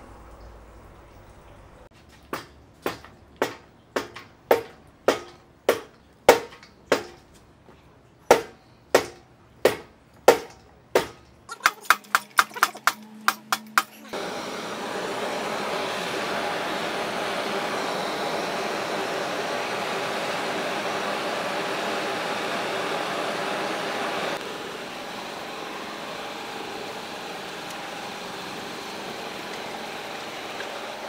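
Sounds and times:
hammer striking steel punch: 2.3 - 7.2, 8.3 - 11.2
blowtorch flame hissing: 14.1 - 31.0.

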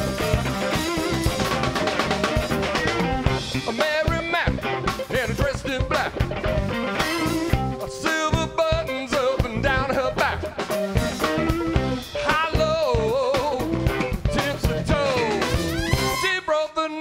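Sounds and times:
drum kit beat: 0.0 - 16.3
electric guitar: 0.0 - 16.3
man singing: 3.4 - 17.0.

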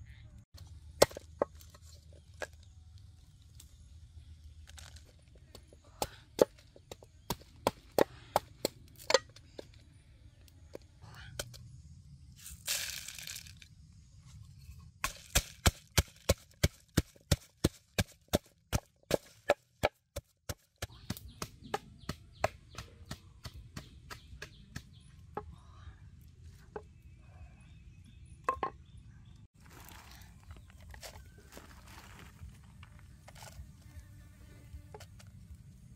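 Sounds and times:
pestle pounding in wooden mortar: 15.0 - 25.0.

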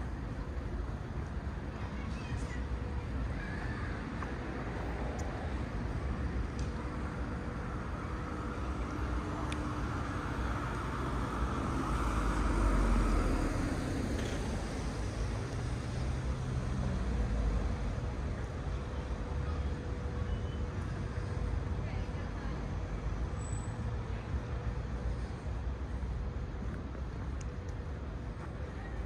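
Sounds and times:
hum of traffic: 0.0 - 29.0
vehicle passing: 10.0 - 17.1.

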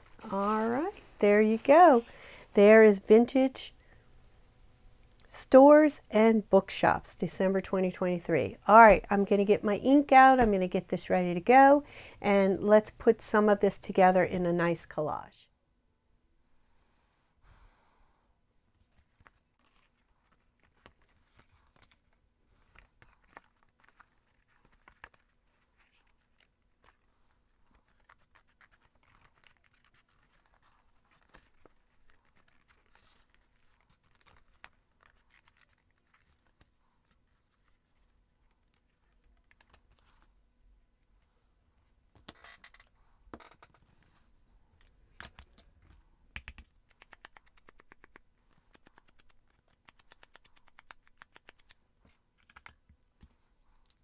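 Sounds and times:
paper rustling: 18.8 - 40.3
scissors snipping paper: 27.7 - 36.8, 46.4 - 51.8.

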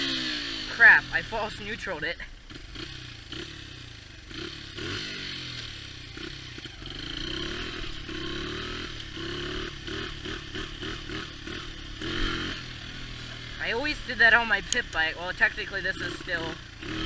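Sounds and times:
dirt bike engine revving: 0.0 - 17.0.

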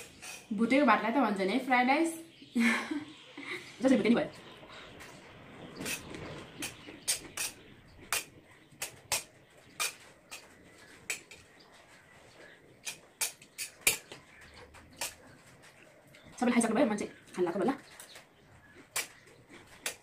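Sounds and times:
metal spoon scraping metal bowl: 5.8 - 10.5, 12.8 - 14.2.

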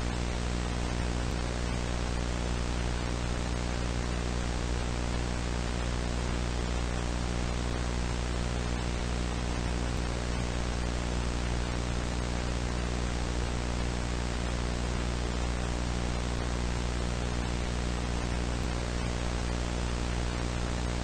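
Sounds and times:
mains hum: 0.0 - 21.0.

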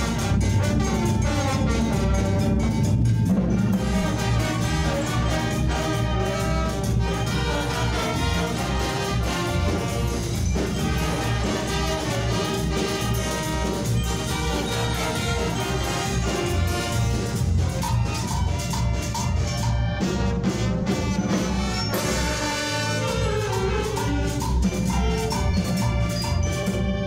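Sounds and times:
brass band playing: 0.0 - 27.0
pulsing bass line: 0.0 - 27.0.

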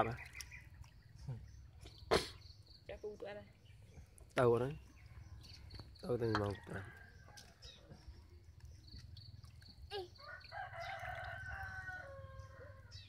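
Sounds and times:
rooster crowing: 10.2 - 13.0.

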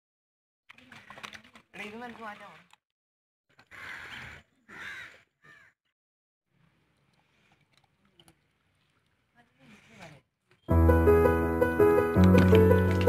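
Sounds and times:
crow cawing: 3.6 - 5.8.

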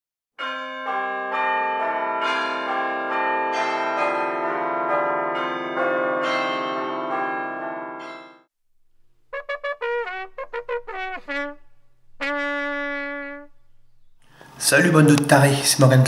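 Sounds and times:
bells ringing in a peal: 0.4 - 8.5.

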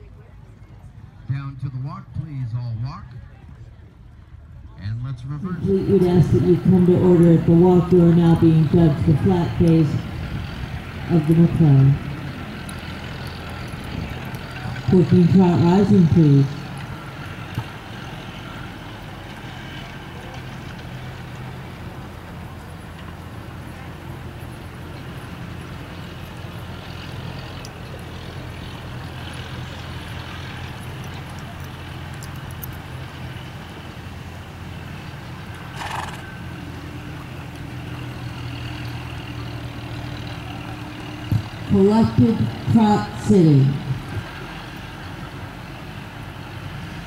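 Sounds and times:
low engine hum: 0.0 - 47.0.

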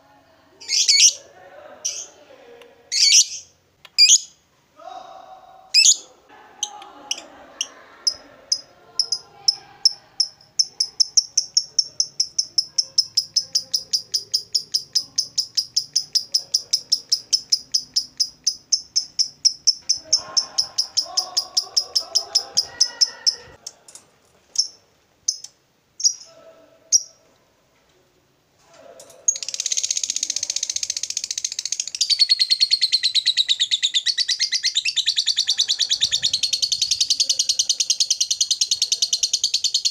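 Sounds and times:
lovebird chirping trill: 2.9 - 4.4, 8.5 - 23.5, 29.3 - 39.9.

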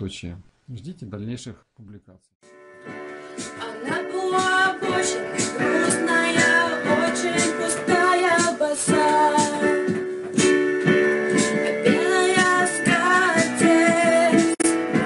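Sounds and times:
keyboard accompaniment: 2.4 - 15.0
woman singing: 3.4 - 10.0, 11.4 - 15.0.

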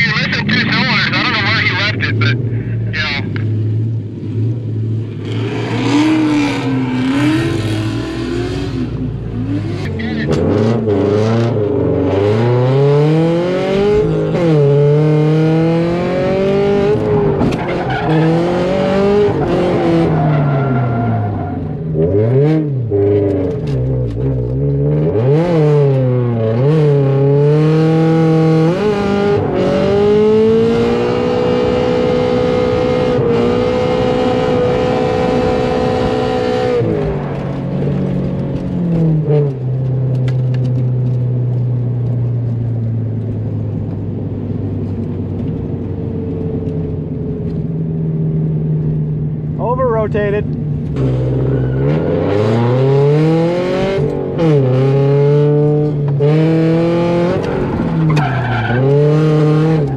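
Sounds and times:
car engine revving: 0.0 - 59.9.

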